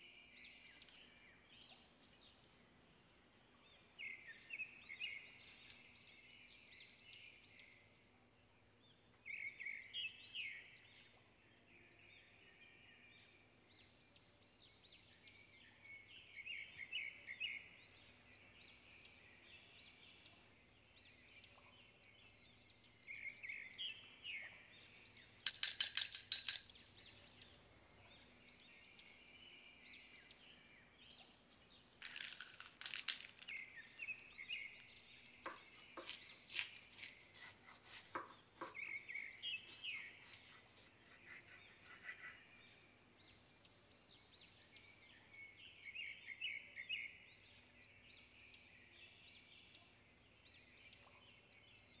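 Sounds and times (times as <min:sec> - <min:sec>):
birds chirping: 0:15.9 - 0:31.9
fork whisking in glass bowl: 0:25.5 - 0:26.7
knife cutting crisp pastry: 0:36.0 - 0:38.8, 0:39.6 - 0:42.1.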